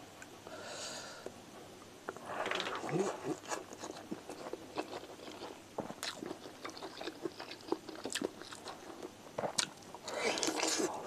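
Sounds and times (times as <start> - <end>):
person chewing with wet smacks: 3.3 - 10.9.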